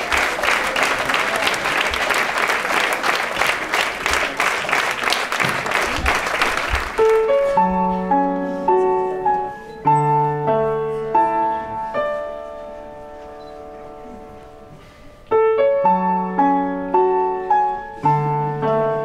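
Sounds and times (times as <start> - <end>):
audience applauding: 0.0 - 7.5
short piano melody: 6.9 - 19.0.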